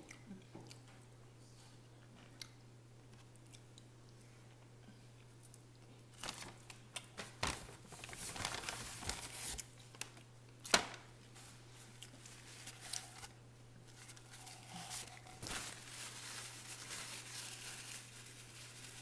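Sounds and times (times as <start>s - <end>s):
paper napkins rustling: 6.2s - 10.1s, 10.7s - 19.0s.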